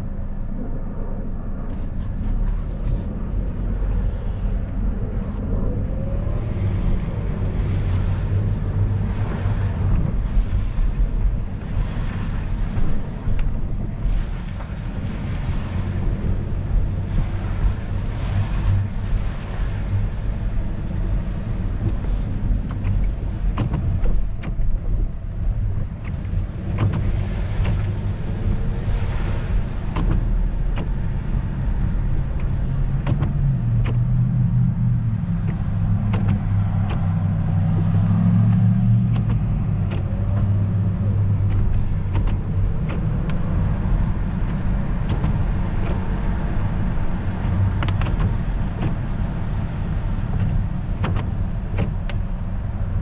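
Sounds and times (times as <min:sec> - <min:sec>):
engine and road rumble: 0:00.0 - 0:53.0
light ticks: 0:21.8 - 0:28.6, 0:32.4 - 0:34.7, 0:46.9 - 0:49.1
tyre hiss on wet road: 0:22.0 - 0:22.4.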